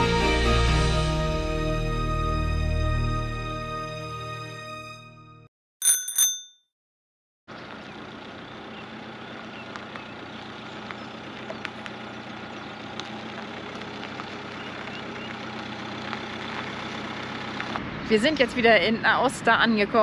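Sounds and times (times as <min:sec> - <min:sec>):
motorhome engine running: 0:07.5 - 0:20.0.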